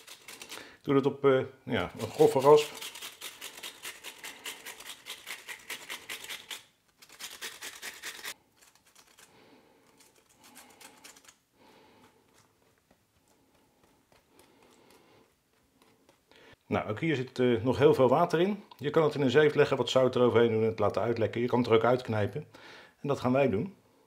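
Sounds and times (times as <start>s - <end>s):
cucumber rasping on grater: 0.0s - 0.6s, 2.0s - 8.4s.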